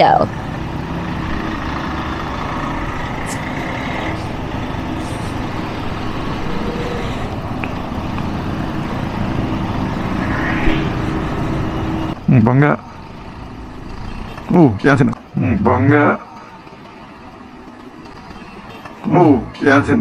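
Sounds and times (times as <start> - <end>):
scooter traffic rumble: 0.0 - 15.6, 16.2 - 19.2.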